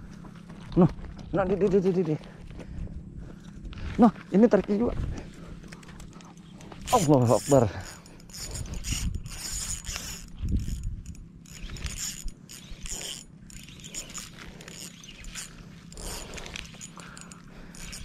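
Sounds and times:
fishing reel whirring and clicking: 5.6s - 18.0s.

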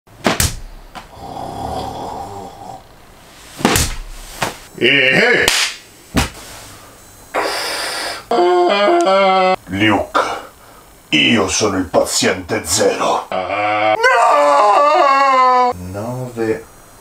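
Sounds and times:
sharp knocks: 0.2s - 1.1s, 3.6s - 4.6s.

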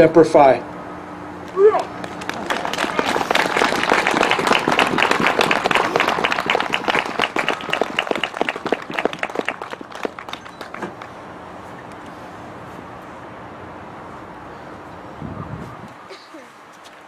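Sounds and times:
audience applauding: 1.8s - 11.1s.

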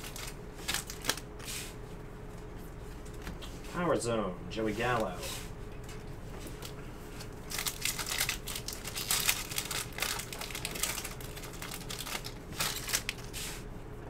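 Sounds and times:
foil wrapper crinkling: 0.0s - 1.5s, 6.4s - 13.6s.

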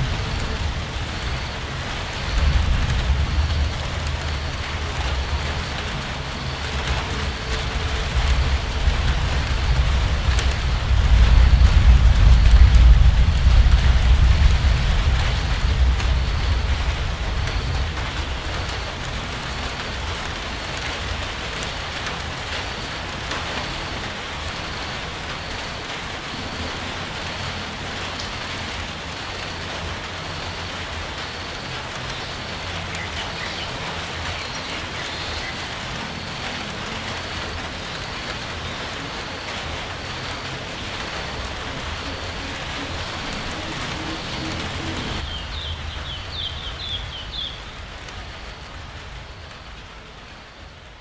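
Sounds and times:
low rumble: 0.0s - 18.0s, 40.9s - 46.0s
steady rain falling: 0.0s - 51.0s.

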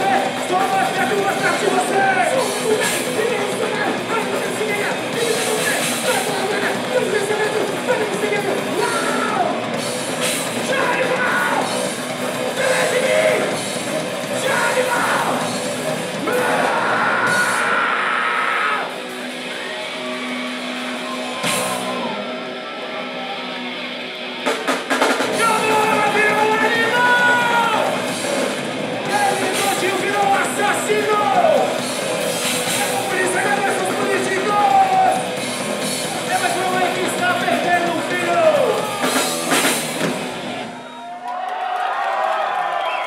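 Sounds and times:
bass guitar: 0.0s - 40.8s
distorted electric guitars: 0.0s - 40.8s
drum kit: 0.0s - 41.2s
shouted vocals: 12.6s - 13.6s, 14.4s - 15.5s, 16.2s - 19.0s, 25.4s - 28.0s.

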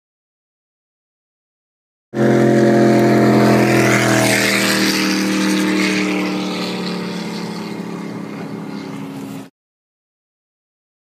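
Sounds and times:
speedboat engine: 2.2s - 9.5s
wind and water rushing: 2.2s - 9.5s.

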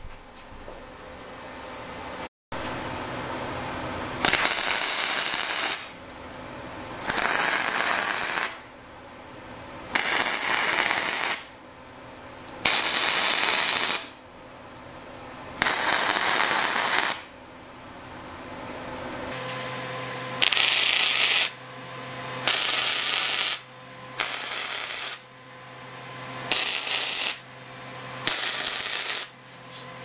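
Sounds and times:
welder welding steel: 4.2s - 6.0s, 7.0s - 8.6s, 9.9s - 11.6s, 12.5s - 14.2s, 15.6s - 17.4s, 20.4s - 21.6s, 22.4s - 25.3s, 26.5s - 27.5s, 28.2s - 29.4s.

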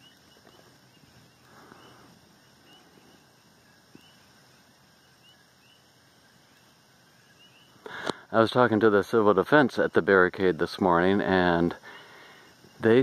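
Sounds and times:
soft high chirps: 0.0s - 8.0s.

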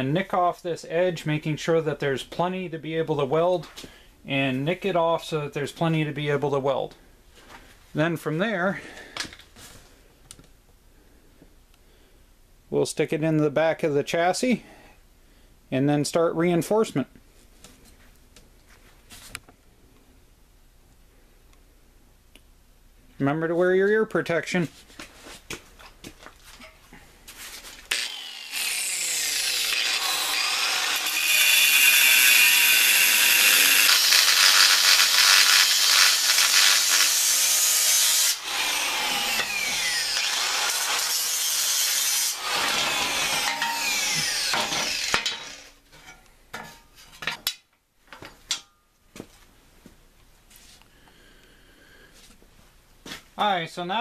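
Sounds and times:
angle grinder cutting steel: 27.9s - 45.8s.

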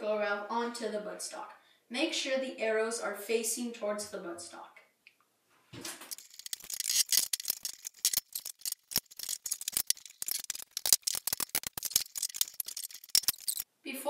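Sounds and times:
plastic parts clicking and rattling: 6.0s - 13.6s.

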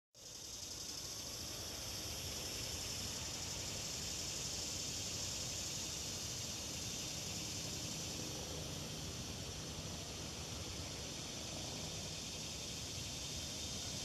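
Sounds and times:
high-pitched insect drone: 0.2s - 14.0s.

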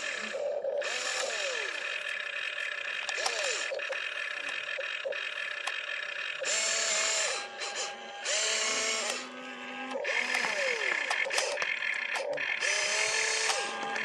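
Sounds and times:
small electric motors whining: 0.0s - 14.0s.

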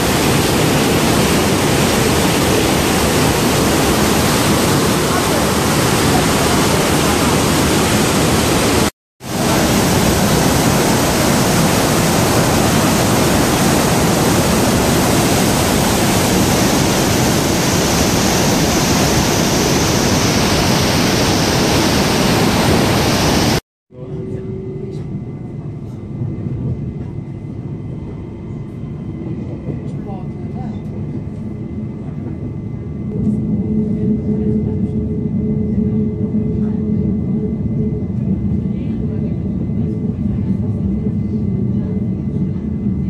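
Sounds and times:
train running: 0.0s - 23.6s
waterfall rushing: 0.0s - 23.6s.

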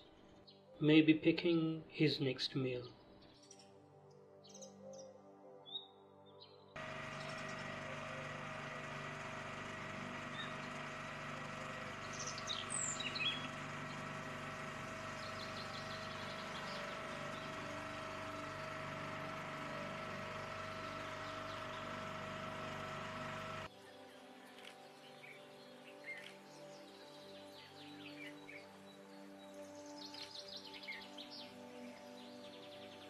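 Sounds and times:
boat motor running: 6.8s - 23.7s.

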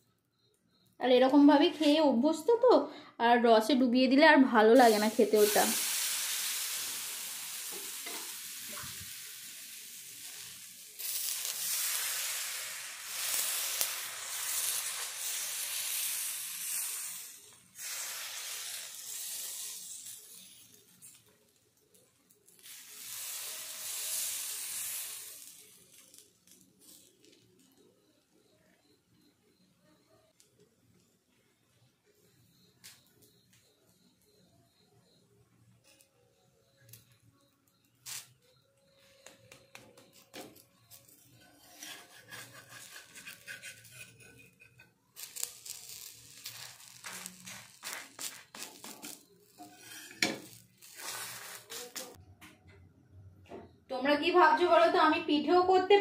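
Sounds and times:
batter sizzling on hot iron pan: 4.6s - 29.5s, 37.8s - 38.5s, 40.0s - 52.2s
metal spatula scraping a griddle: 41.2s - 52.0s
spatula clink: 41.9s - 44.9s.

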